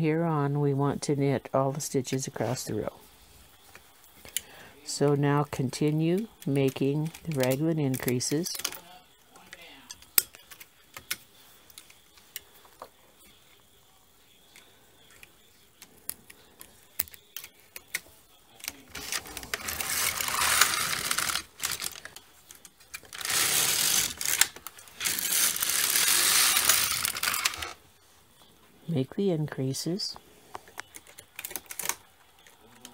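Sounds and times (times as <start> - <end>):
knitting machine carriage clatter: 19.0 - 22.1.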